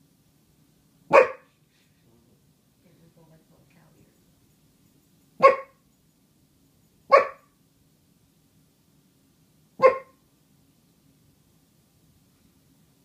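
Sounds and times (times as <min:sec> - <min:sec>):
dog barking: 0:01.1 - 0:01.6, 0:05.4 - 0:05.8, 0:07.1 - 0:07.5, 0:09.8 - 0:10.2.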